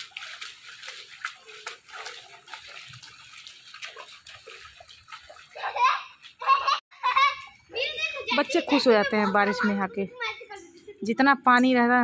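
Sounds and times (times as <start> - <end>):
feet splashing through water: 0.0 - 6.8.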